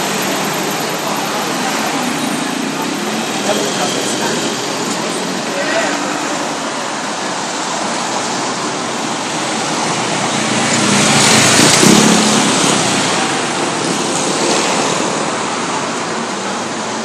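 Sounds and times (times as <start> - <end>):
road and traffic noise: 0.0 - 17.0
nearby engine passing: 9.2 - 16.0.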